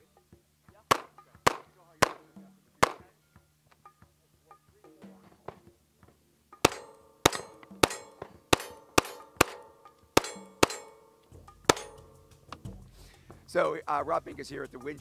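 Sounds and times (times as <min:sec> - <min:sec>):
pistol shots: 0:00.9 - 0:03.1, 0:06.6 - 0:12.2.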